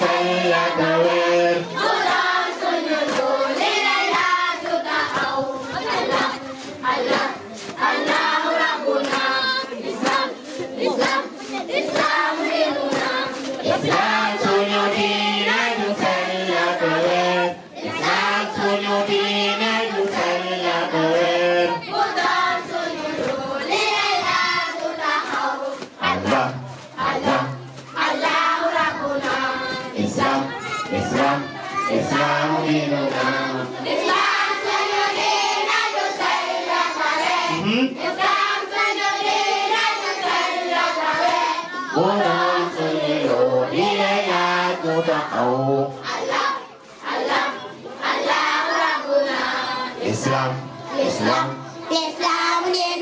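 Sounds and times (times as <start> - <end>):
hand claps: 0.0 - 45.5
children singing in unison: 0.0 - 53.0.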